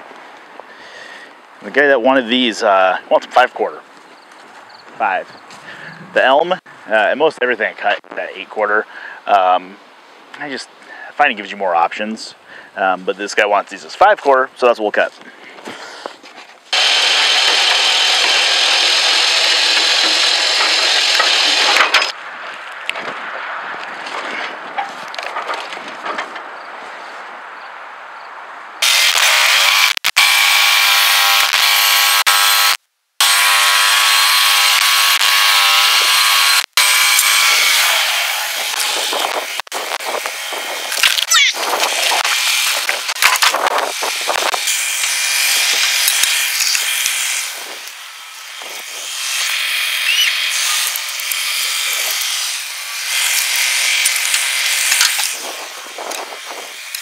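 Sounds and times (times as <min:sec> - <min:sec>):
bandsaw sawmill sawing log: 0:16.7 - 0:22.2, 0:28.8 - 0:57.0.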